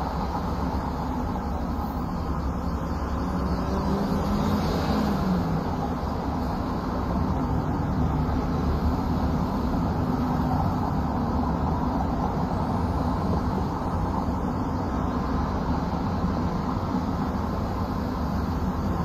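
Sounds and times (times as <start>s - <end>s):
city traffic rumble: 0.0s - 19.0s.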